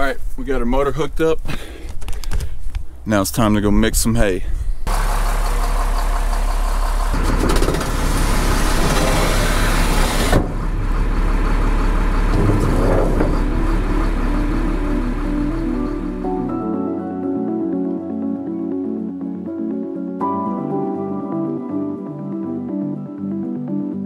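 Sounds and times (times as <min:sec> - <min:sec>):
engine running with deep hum: 0:04.8 - 0:16.8.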